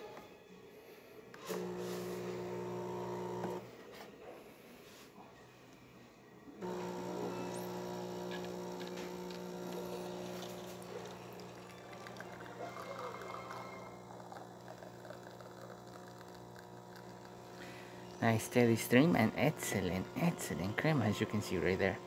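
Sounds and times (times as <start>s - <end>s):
espresso machine pump humming: 1.5s - 3.6s, 6.6s - 22.0s
espresso running into glass: 1.5s - 3.6s, 6.6s - 21.6s.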